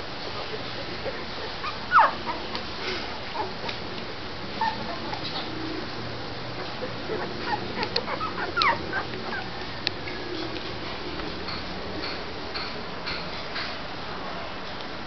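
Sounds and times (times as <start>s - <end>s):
puppies whimpering: 0.4s - 3.8s, 4.5s - 9.8s.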